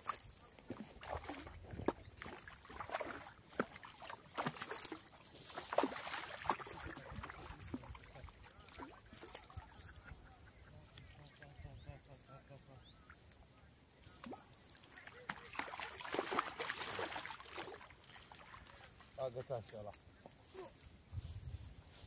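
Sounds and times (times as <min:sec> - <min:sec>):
fish thrashing and splashing: 0:00.0 - 0:10.2, 0:14.1 - 0:19.1.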